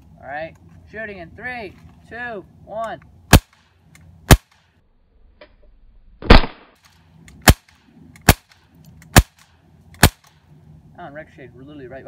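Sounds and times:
bb pistol shots: 0:03.3 - 0:03.6, 0:04.3 - 0:04.6, 0:06.2 - 0:10.3.

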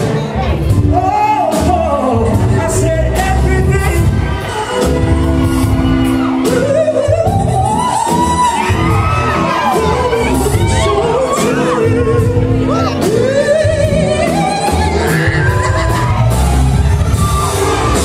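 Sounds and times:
bass: 0:00.0 - 0:18.0
keyboard: 0:00.0 - 0:18.0
man singing: 0:00.4 - 0:04.3, 0:06.3 - 0:16.2
crowd shouting: 0:07.8 - 0:13.3, 0:14.6 - 0:18.0.

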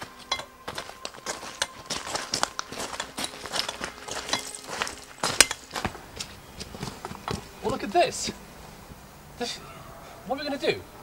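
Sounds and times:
footsteps on stony ground: 0:00.0 - 0:08.4.

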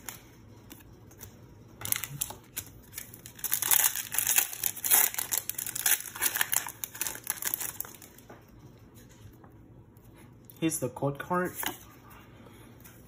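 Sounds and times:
foil wrapper crinkling and tearing: 0:01.8 - 0:08.2.

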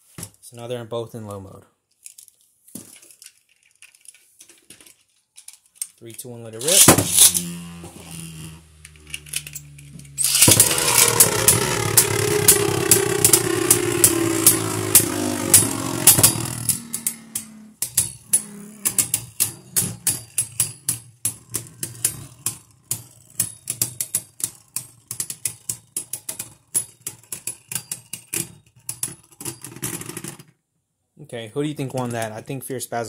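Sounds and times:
spinning tops clacking together: 0:06.6 - 0:28.3.

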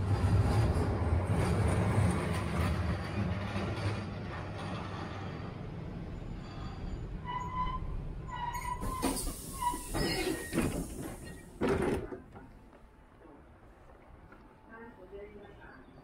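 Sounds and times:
tram rumbling on rails: 0:00.0 - 0:16.0
high metallic squeals: 0:06.2 - 0:11.5.

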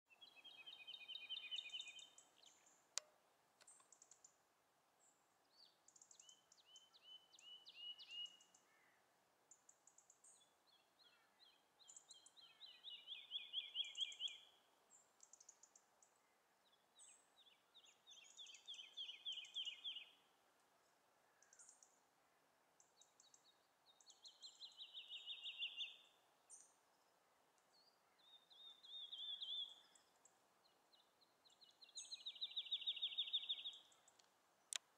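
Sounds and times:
woodlark singing: 0:00.1 - 0:04.4, 0:11.2 - 0:14.6, 0:17.0 - 0:20.2, 0:22.8 - 0:26.8, 0:27.8 - 0:34.9.

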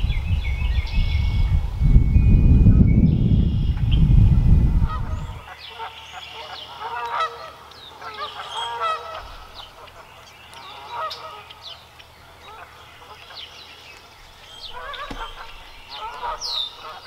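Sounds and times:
geese honking: 0:04.8 - 0:17.0.

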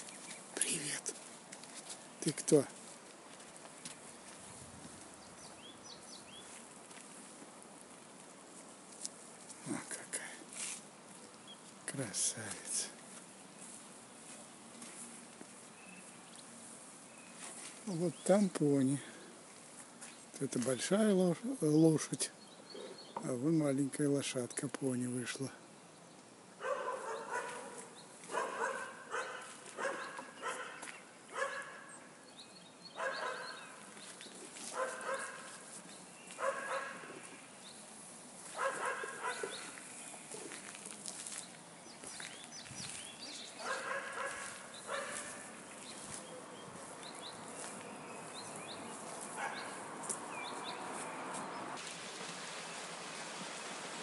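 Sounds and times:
dog barking: 0:26.6 - 0:31.9, 0:33.0 - 0:33.6, 0:34.7 - 0:35.5, 0:36.4 - 0:37.1, 0:38.6 - 0:39.7, 0:43.6 - 0:45.5, 0:49.4 - 0:49.8.

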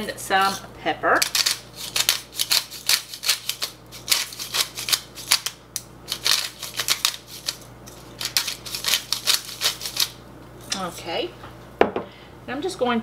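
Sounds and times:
pepper grinder rasping: 0:00.3 - 0:11.0.

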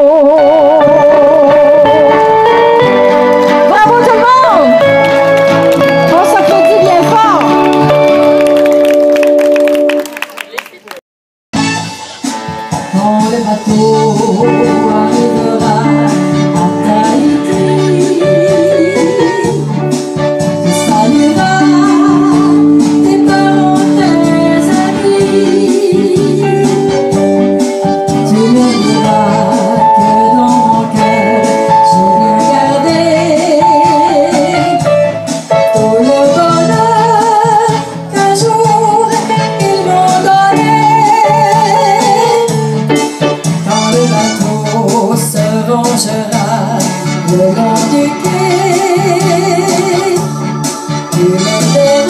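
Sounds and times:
electronic keyboard melody: 0:00.0 - 0:10.4, 0:11.6 - 0:52.0
backing rhythm: 0:00.8 - 0:10.2, 0:11.6 - 0:52.0
melody line with vibrato: 0:21.0 - 0:37.2.

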